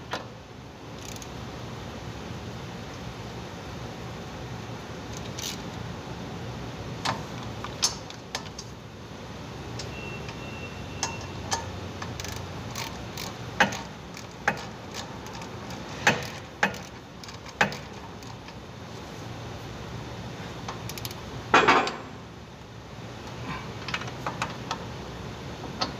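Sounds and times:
wrench clicking on metal: 1.0 - 1.3, 5.1 - 5.6, 11.0 - 18.6, 20.7 - 21.2.

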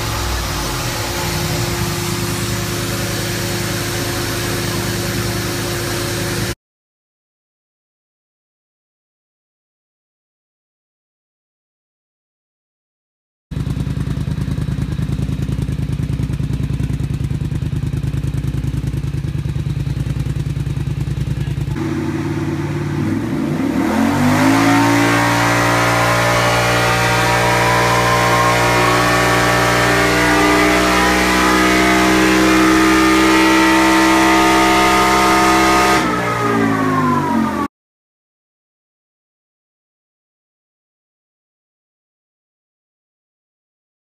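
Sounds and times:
atv engine revving: 0.0 - 6.6, 13.6 - 37.7
high-pitched whine: 0.0 - 6.6, 21.8 - 37.7.

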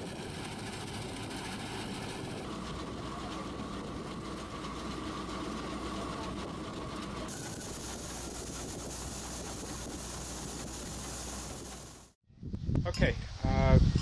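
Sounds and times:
combine harvester engine hum: 0.0 - 12.2
machinery whine: 0.0 - 12.2
grain auger hiss: 7.3 - 12.2.

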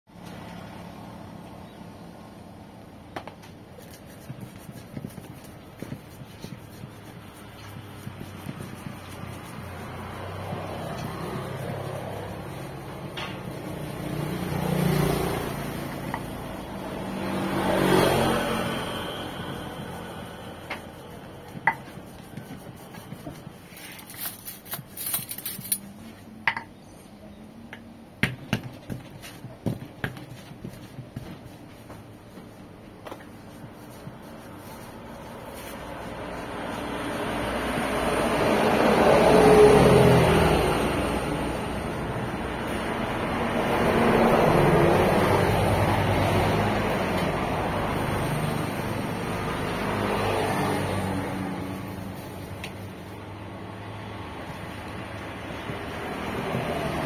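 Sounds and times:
pestle grinding in stone mortar: 3.1 - 25.9, 28.2 - 50.9, 54.8 - 57.0
stone pestle knocking and grinding: 3.2 - 14.3, 15.3 - 16.6, 19.9 - 24.8, 28.2 - 32.0
vehicle passing: 5.3 - 26.2, 33.4 - 57.0
stone knocking on stone: 26.5 - 26.7.

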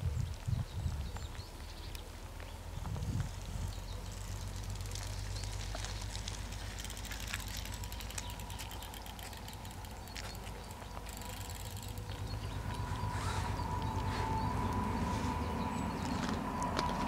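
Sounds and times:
bicycle freewheel ticking: 4.1 - 14.9.

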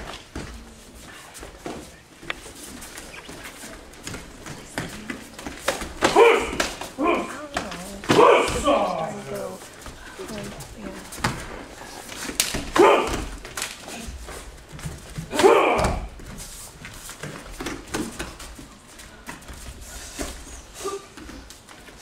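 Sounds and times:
feet on training mat: 0.0 - 22.0
person shouting: 15.3 - 16.1.

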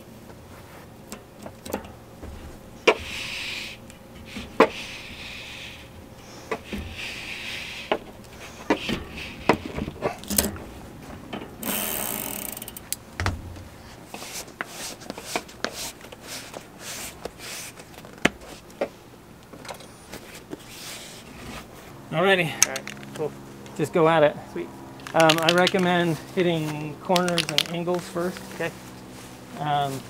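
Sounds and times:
ratcheting buzz: 11.6 - 13.0
metallic clicks and clanks: 25.0 - 25.9, 27.1 - 27.9.

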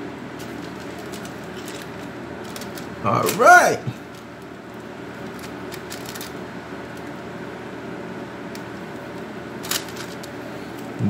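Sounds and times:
kitchen background hum: 0.0 - 11.0
plastic bag crinkling: 0.4 - 3.4, 4.0 - 7.1, 9.6 - 10.4.

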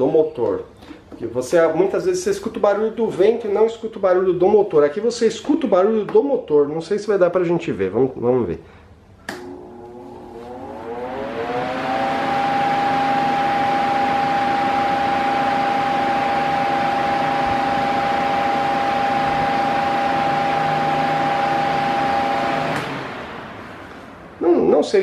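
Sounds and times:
fan rushing air: 8.7 - 25.0
fan motor whining hum: 9.2 - 25.0.

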